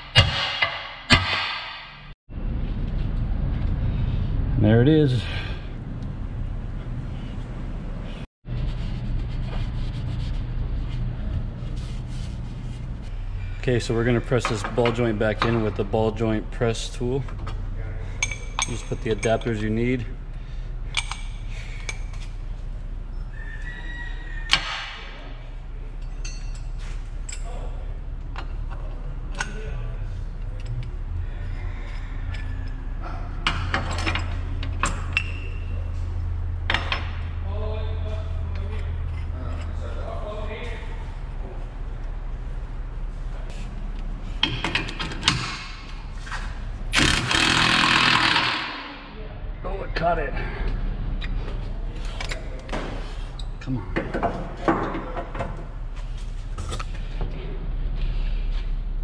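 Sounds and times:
short rising squeak: 23.1s - 24.6s
power wrench running: 46.9s - 48.9s.

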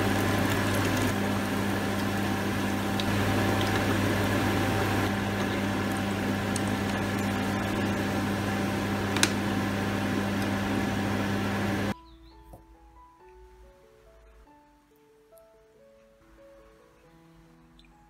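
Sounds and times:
food sizzling in hot oil: 0.0s - 12.0s
steady low hum: 0.0s - 12.0s.

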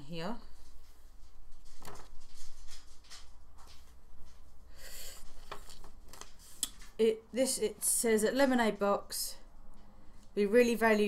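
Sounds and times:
paper card rustling: 1.2s - 4.0s, 5.2s - 7.0s.

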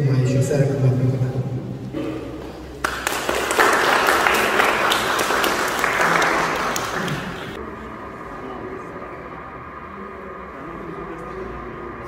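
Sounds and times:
audience applauding: 2.8s - 7.6s.

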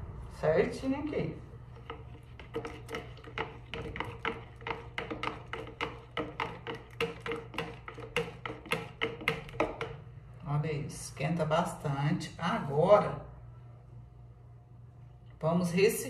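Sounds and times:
plastic stirrer clicking in jug: 1.9s - 9.9s.

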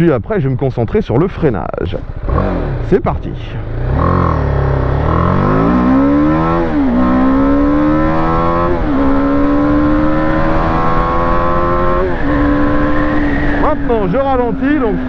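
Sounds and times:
motorcycle engine accelerating: 1.8s - 15.0s.

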